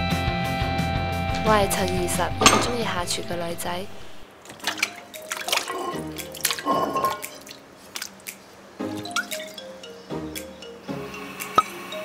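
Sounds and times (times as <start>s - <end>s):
food plopping into water: 4.5s - 8.4s.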